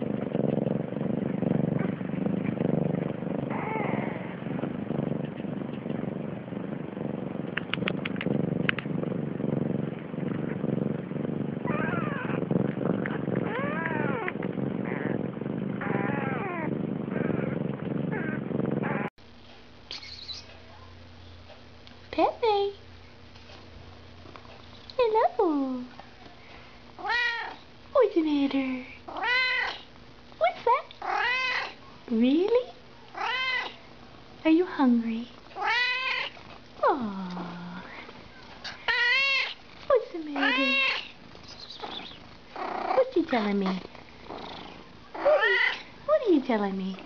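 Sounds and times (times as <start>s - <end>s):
steady low rumble: 0.0s - 19.9s
newborn kittens mewing: 3.4s - 4.4s, 11.6s - 15.2s, 15.8s - 19.1s, 29.1s - 29.9s, 31.0s - 31.8s, 33.1s - 33.8s, 35.6s - 37.0s, 38.7s - 39.6s, 40.2s - 43.1s, 43.8s - 45.9s.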